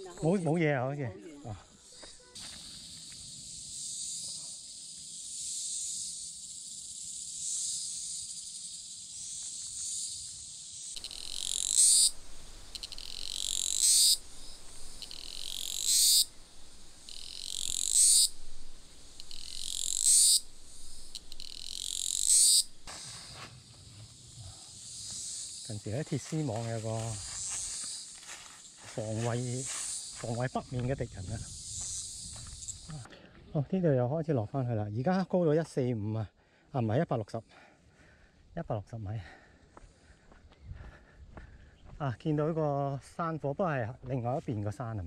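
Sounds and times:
cicadas buzzing chorus: 0:00.0 - 0:33.1, 0:36.6 - 0:45.0
loud cicada call: 0:00.0 - 0:33.1.

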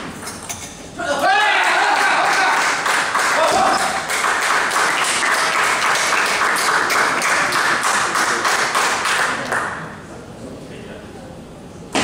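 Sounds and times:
spectators clapping: 0:01.5 - 0:09.8.

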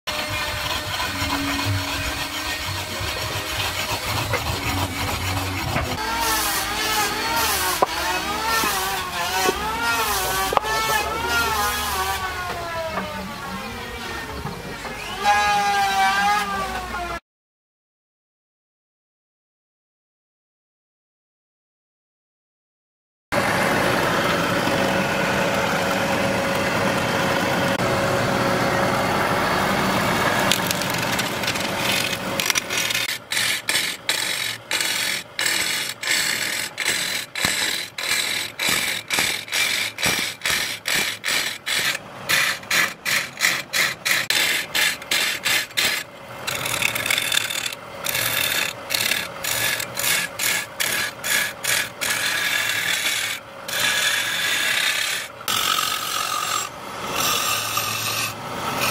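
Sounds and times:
chisel shaving wood on lathe: 0:00.1 - 0:13.8, 0:23.4 - 0:58.9.

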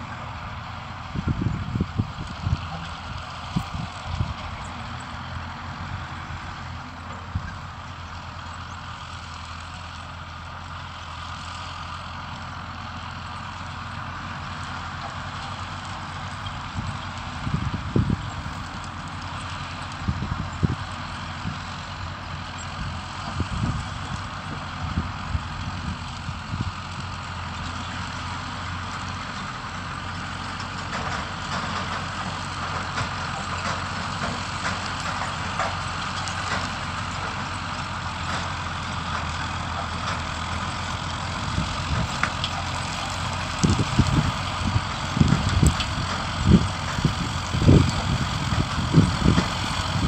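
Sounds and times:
distant farm machinery engine: 0:00.0 - 0:50.0
wind buffeting microphone: 0:01.0 - 0:04.7, 0:16.7 - 0:18.6, 0:22.8 - 0:26.8, 0:43.6 - 0:50.0.

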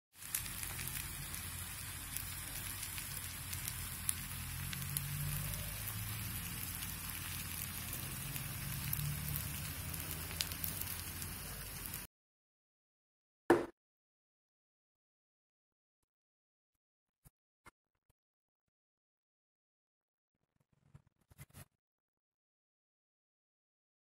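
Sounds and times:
chicken sizzling in hot pan: 0:00.1 - 0:12.1.

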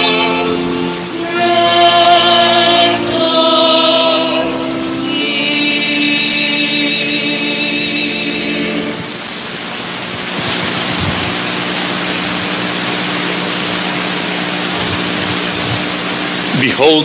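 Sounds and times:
hymn singing: 0:00.0 - 0:10.6
steady loud hiss: 0:00.0 - 0:17.0.

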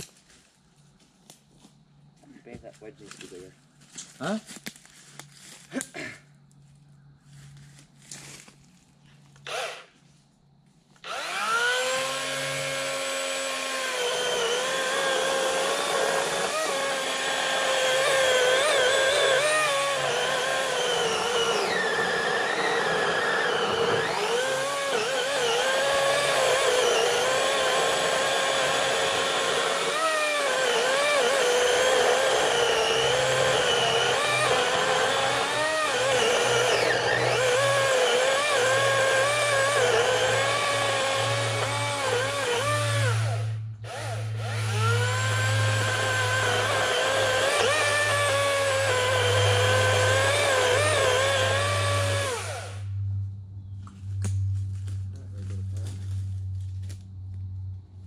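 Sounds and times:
electric chainsaw cutting wood: 0:09.4 - 0:09.9, 0:11.0 - 0:53.0.

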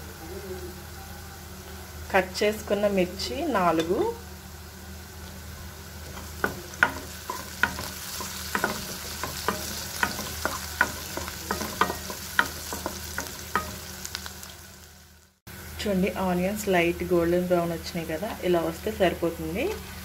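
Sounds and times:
food sizzling in hot oil: 0:00.0 - 0:20.0
spatula scraping and knocking pan: 0:06.0 - 0:14.2.

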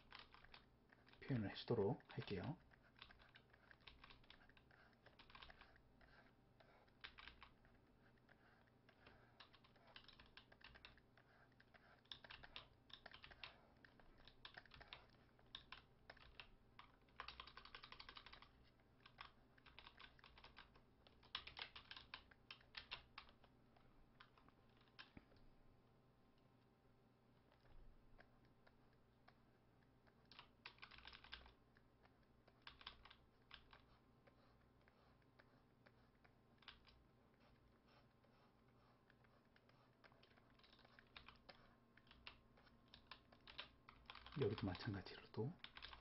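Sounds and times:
computer keyboard clicking: 0:00.0 - 0:06.2, 0:06.9 - 0:07.7, 0:08.9 - 0:11.0, 0:11.6 - 0:23.5, 0:30.1 - 0:31.6, 0:32.4 - 0:33.9, 0:36.6 - 0:37.0, 0:40.0 - 0:45.0, 0:45.6 - 0:46.0.

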